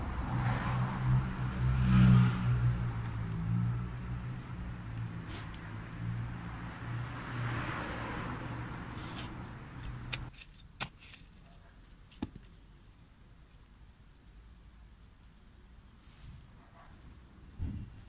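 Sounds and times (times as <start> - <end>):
vehicle engine passing: 0.0 - 10.2
hand trowel digging into soil: 8.9 - 12.2.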